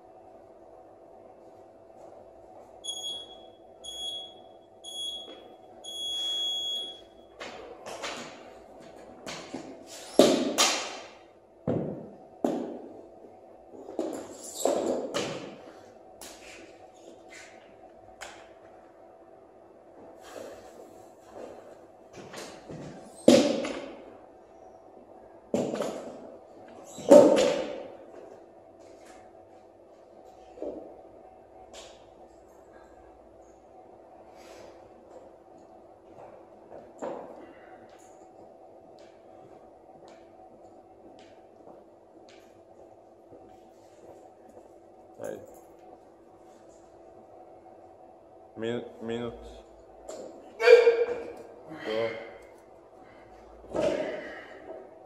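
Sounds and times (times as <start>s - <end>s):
timer beeps: 2.8s - 7.1s.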